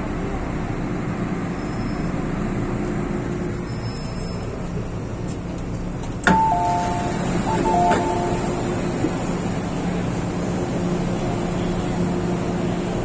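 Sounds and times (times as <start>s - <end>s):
train running low hum: 0.0s - 13.0s
two-note ding-dong chime: 6.3s - 8.4s.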